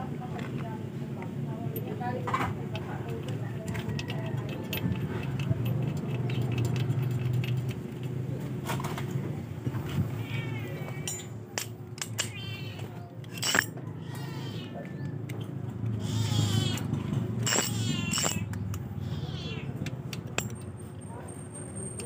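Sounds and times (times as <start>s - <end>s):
metal bolt clinking: 2.7s - 8.1s, 11.0s - 12.4s, 13.2s - 13.8s, 16.7s - 18.8s, 20.1s - 20.8s
cat meowing: 10.1s - 11.0s, 12.3s - 13.1s, 13.8s - 15.0s, 16.0s - 16.9s, 17.5s - 19.8s.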